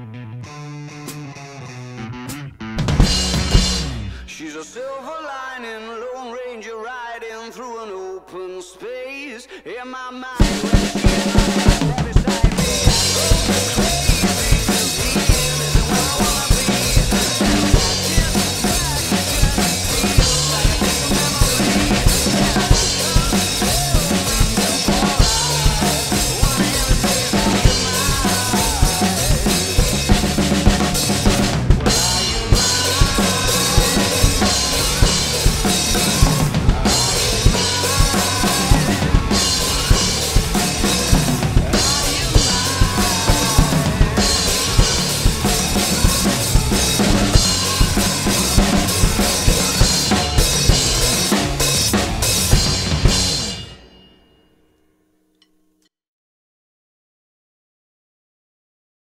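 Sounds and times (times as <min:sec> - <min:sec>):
recorded rock song: 0:00.0 - 0:54.1
drum kit rock beat: 0:02.2 - 0:04.4, 0:10.4 - 0:53.9.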